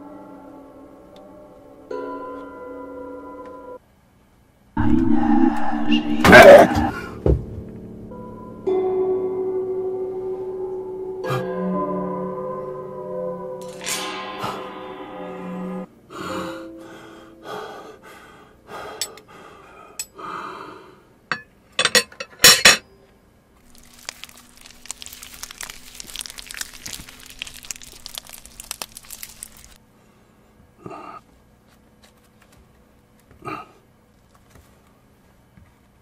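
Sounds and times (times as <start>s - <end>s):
food crinkling and crackling: 23.6s - 29.8s
hands handling food: 23.6s - 29.8s.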